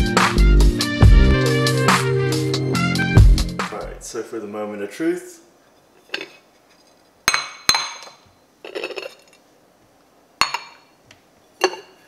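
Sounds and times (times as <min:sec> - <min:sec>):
ceramic plates clinking on bowls: 0:10.4 - 0:10.9, 0:11.6 - 0:12.0.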